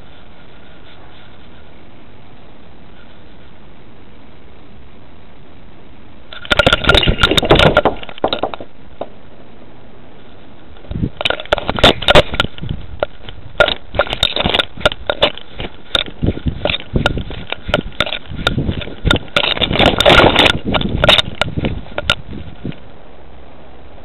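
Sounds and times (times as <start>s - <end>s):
camera knocking and scraping: 6.3s - 9.2s, 10.8s - 22.8s.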